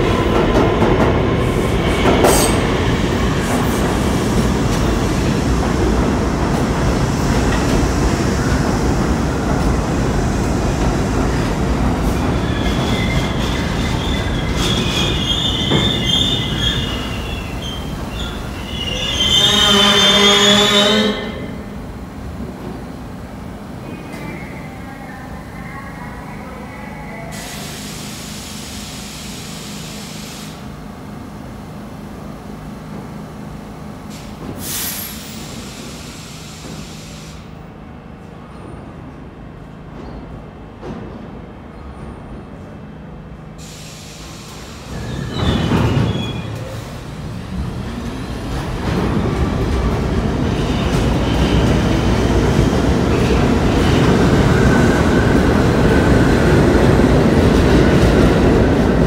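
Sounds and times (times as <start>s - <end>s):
train wheels rumbling on rail: 0.0s - 59.0s
high wheel squeal: 12.2s - 20.9s, 44.9s - 46.8s
loud blast of air: 34.6s - 37.4s
air hissing: 43.6s - 45.0s.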